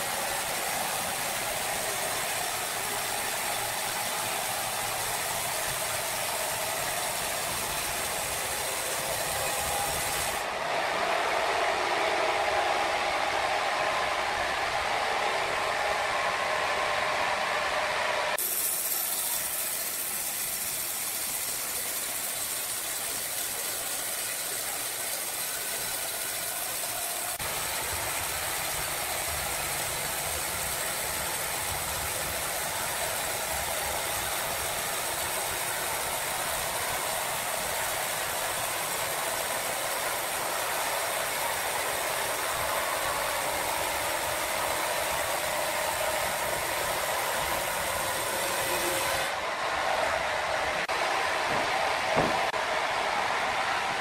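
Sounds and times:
sawmill machinery hissing: 0.0s - 10.6s, 18.4s - 49.4s.

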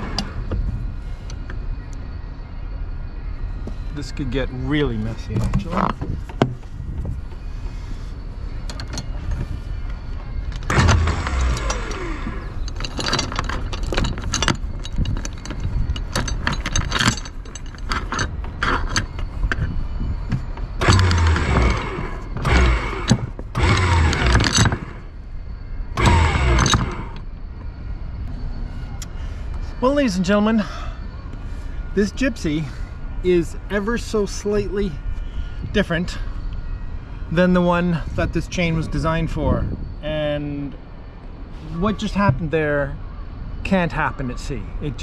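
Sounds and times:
anchor chain clanking and rattling: 8.6s - 9.5s, 10.4s - 25.2s, 26.0s - 27.3s.

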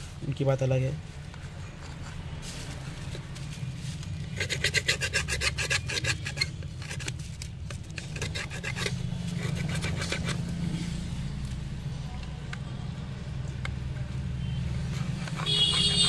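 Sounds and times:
metal pick scraping adhesive: 4.2s - 10.5s, 14.8s - 16.0s.

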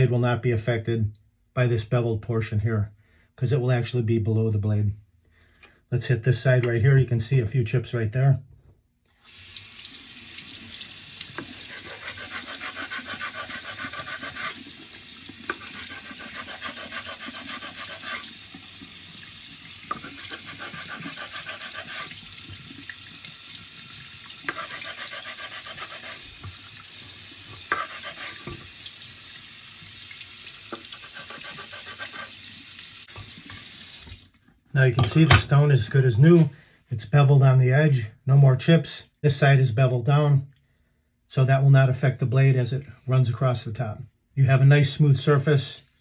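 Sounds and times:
tap water running into sink: 9.2s - 34.4s
whetstone scraping on stone: 11.4s - 14.7s, 15.5s - 18.3s, 19.9s - 22.2s, 24.5s - 26.2s, 27.6s - 28.6s, 30.7s - 32.4s.

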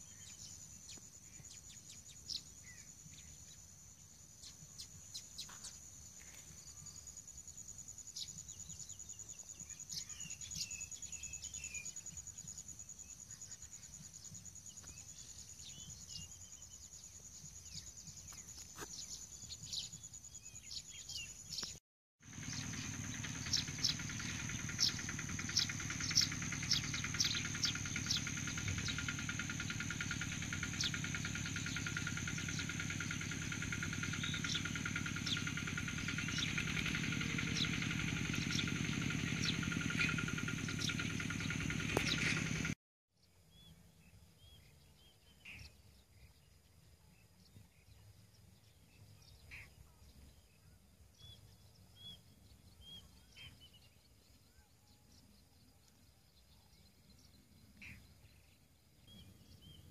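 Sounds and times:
high-pitched insect drone: 22.2s - 42.7s
low hum: 22.3s - 42.8s.

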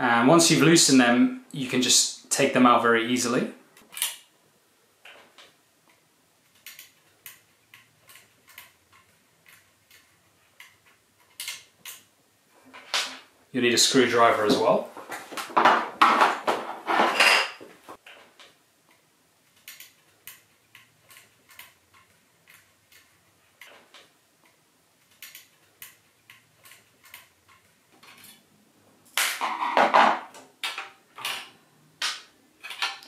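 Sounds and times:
screwdriver clicking on screws: 25.1s - 28.2s.

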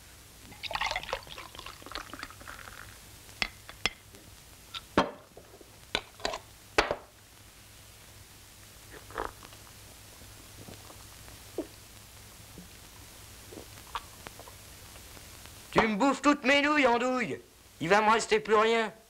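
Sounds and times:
beer gurgling into a glass: 0.5s - 3.0s.

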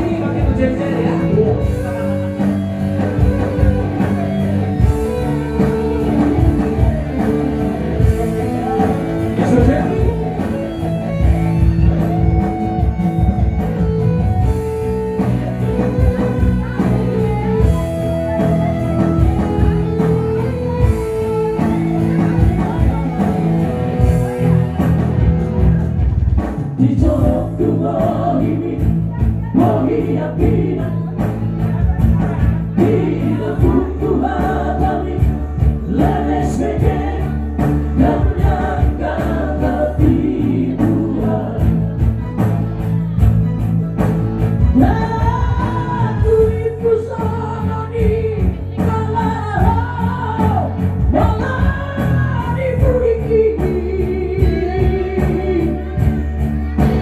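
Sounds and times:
man singing into microphones: 0.0s - 3.8s, 8.5s - 10.5s, 26.8s - 42.0s, 44.8s - 56.0s
electronic keyboard chords: 0.0s - 57.0s.

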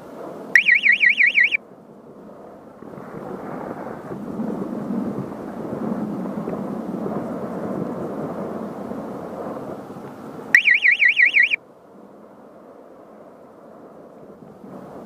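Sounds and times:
electronic warbling tone: 0.6s - 1.6s, 10.6s - 11.6s
wind rushing over microphone: 1.6s - 10.6s, 11.9s - 15.0s.

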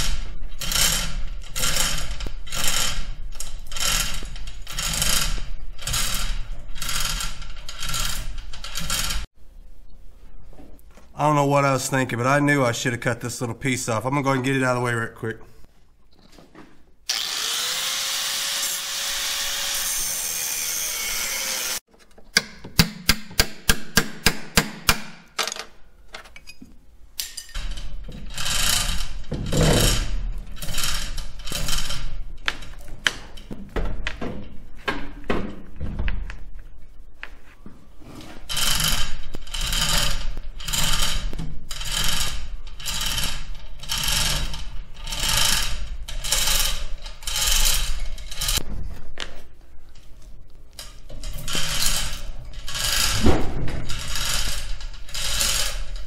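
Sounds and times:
power tool cutting sheet metal: 17.1s - 21.8s.

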